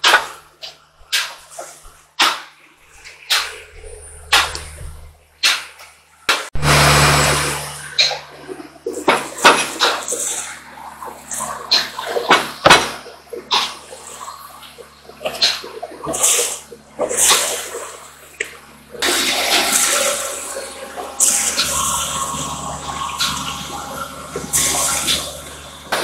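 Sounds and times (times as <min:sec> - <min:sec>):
low steady hum: 0:02.8 - 0:05.4, 0:06.6 - 0:26.0
water gushing into tank: 0:19.0 - 0:26.0.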